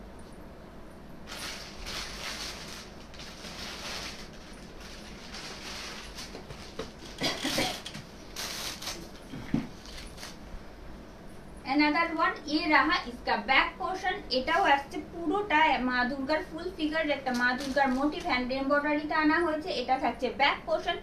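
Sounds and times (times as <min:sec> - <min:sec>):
garments rustling: 0:01.2 - 0:10.4, 0:17.2 - 0:18.4.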